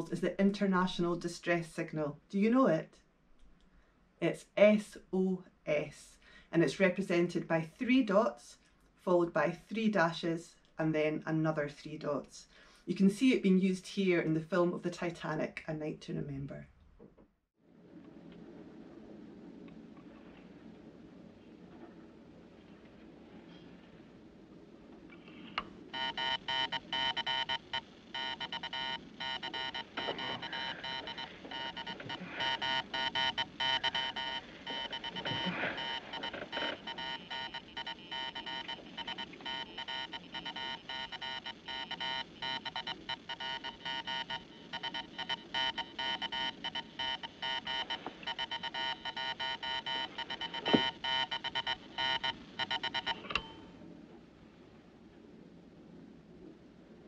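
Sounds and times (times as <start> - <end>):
morse code buzzing tone: 25.9 - 53.7.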